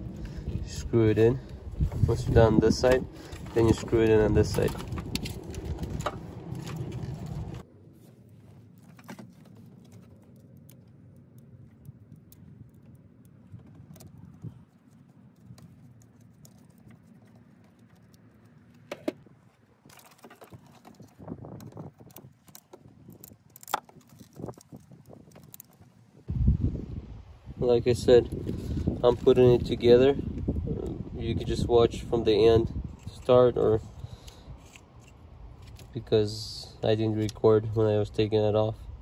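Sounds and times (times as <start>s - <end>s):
rustling handling noise: 1.2s - 26.2s.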